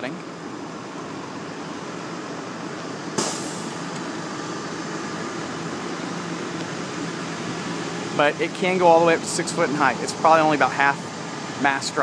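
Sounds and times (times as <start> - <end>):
machinery humming: 0.0 - 12.0
sharp clack: 3.2 - 4.1.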